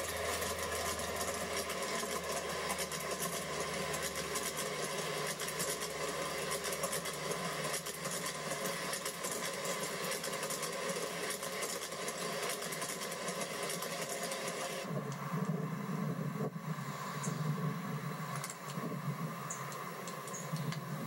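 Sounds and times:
model train wheels clattering: 0.0 - 15.2
mechanical hum: 0.0 - 21.0.

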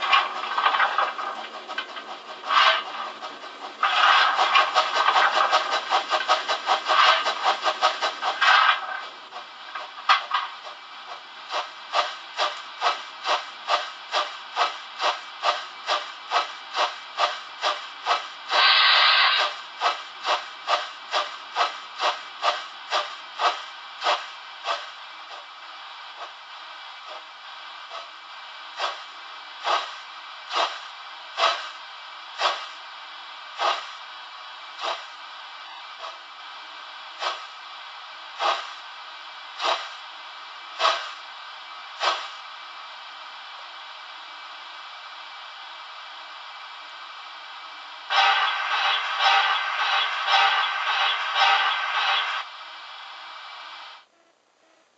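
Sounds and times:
digital steam exhaust chuffs: 0.0 - 9.0, 11.4 - 24.9, 47.9 - 52.5
steady hiss: 0.0 - 54.1
steam hiss burst: 11.5 - 24.9, 38.4 - 38.8, 39.5 - 40.0, 40.8 - 41.3, 42.0 - 42.5, 48.1 - 53.1.

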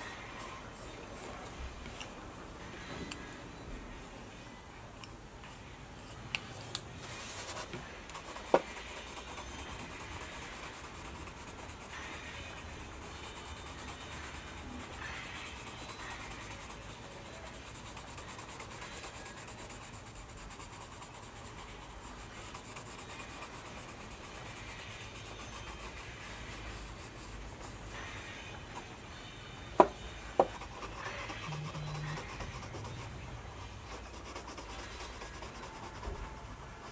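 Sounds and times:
pencil scratching on paper: 7.0 - 28.9, 30.4 - 36.9.

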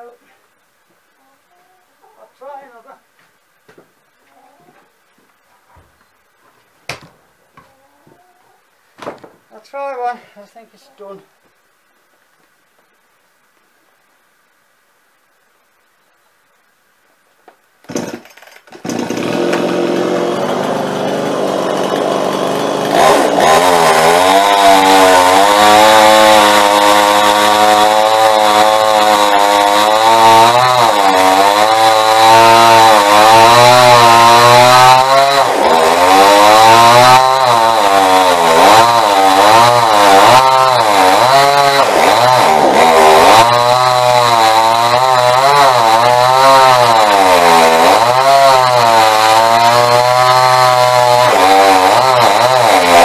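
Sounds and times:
chainsaw cutting log: 17.8 - 53.0.

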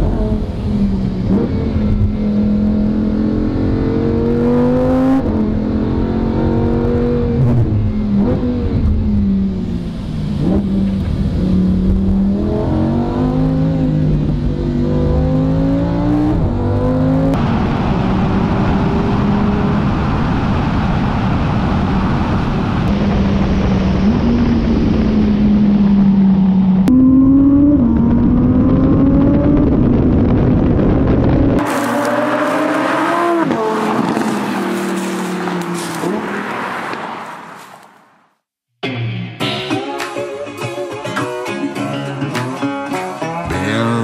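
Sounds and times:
sports car engine accelerating: 0.0 - 37.8
rushing wind: 0.0 - 38.2
tyre noise: 31.6 - 38.0.

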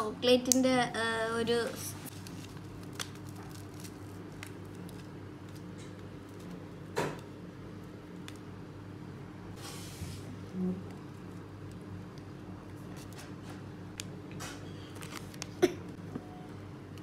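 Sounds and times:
steady low hum: 0.0 - 17.0
plastic packet rustling: 2.0 - 6.6.

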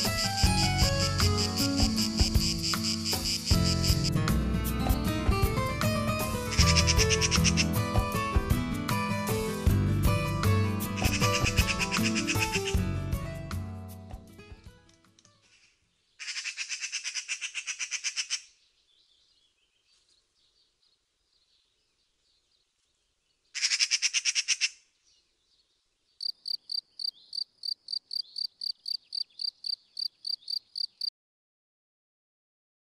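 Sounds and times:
bird trilling: 6.5 - 7.7, 11.0 - 12.8, 15.5 - 18.5
high bird chirps: 26.2 - 31.1.

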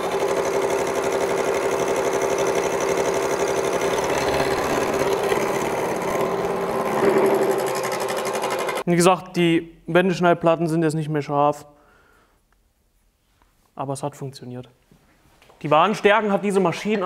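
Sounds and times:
milling machine cutting steel: 0.0 - 8.8.

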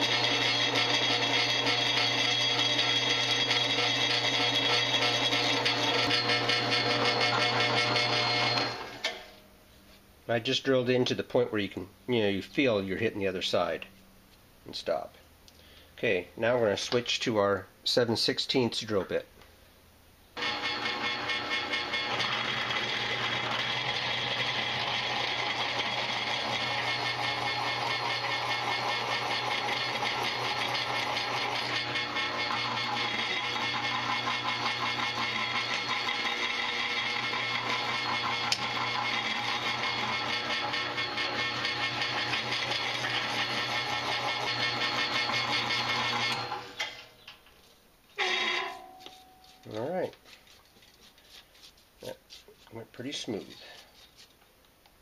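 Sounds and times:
drill bit cutting iron: 0.0 - 9.2, 20.4 - 47.0, 48.2 - 48.8
drill press motor humming: 0.0 - 9.3, 20.4 - 47.0.

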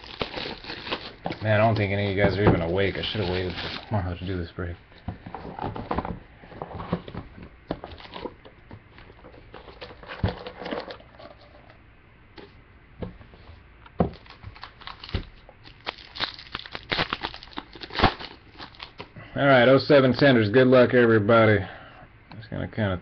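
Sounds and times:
foil wrapper crinkling and tearing: 0.0 - 4.2, 14.1 - 19.1.

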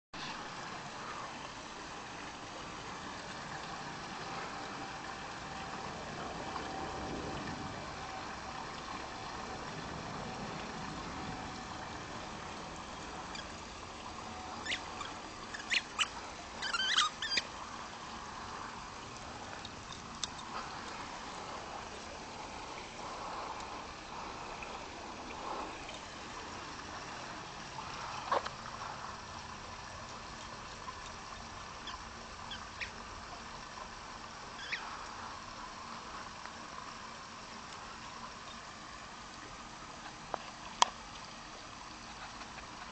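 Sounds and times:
steady background hiss: 0.2 - 42.9.

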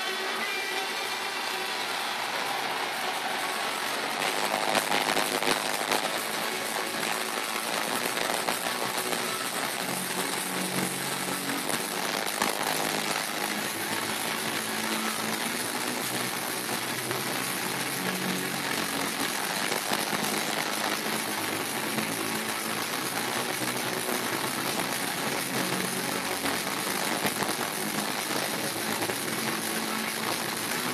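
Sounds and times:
arena crowd roar: 0.0 - 11.3
amplified music: 0.0 - 30.9.

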